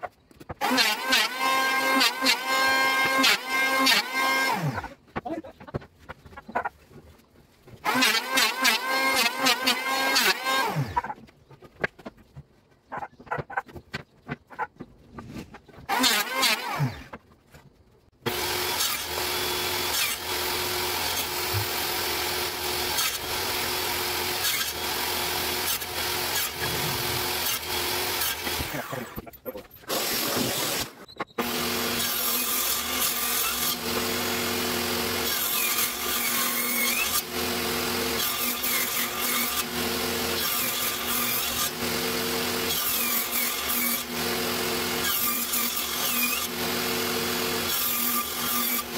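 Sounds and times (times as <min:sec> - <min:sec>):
table saw ripping wood: 0:00.4 - 0:05.3, 0:06.3 - 0:11.9, 0:15.1 - 0:48.9
power tool running: 0:00.6 - 0:05.0, 0:07.8 - 0:11.1, 0:15.9 - 0:17.1, 0:18.2 - 0:29.2, 0:29.9 - 0:48.9.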